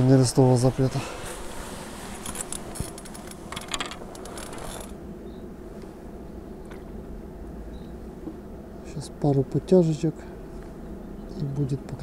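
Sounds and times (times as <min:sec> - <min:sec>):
low wind rumble: 0:00.0 - 0:12.0
fishing gear clicking and rattling: 0:02.1 - 0:05.0.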